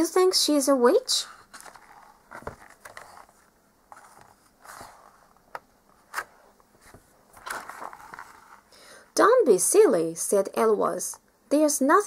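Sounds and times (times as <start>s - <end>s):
book page turning: 1.3s - 8.7s.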